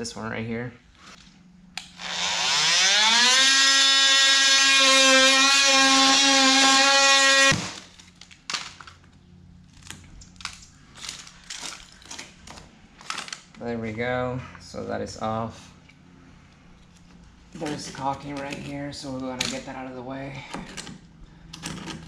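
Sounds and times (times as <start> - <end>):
multi-tool whining cutting wood: 1.8 - 7.9
wood pieces knocking and cracking: 7.5 - 13.6.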